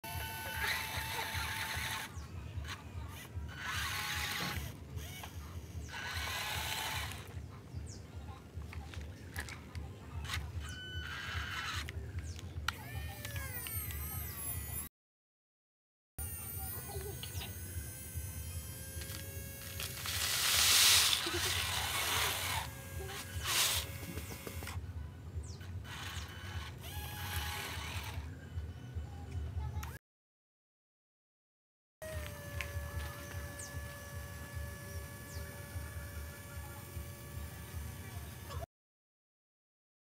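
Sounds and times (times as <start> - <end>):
toy truck electric motor whirring: 0.0 - 7.4, 10.2 - 14.9, 16.2 - 24.8, 25.5 - 28.4, 32.0 - 38.7.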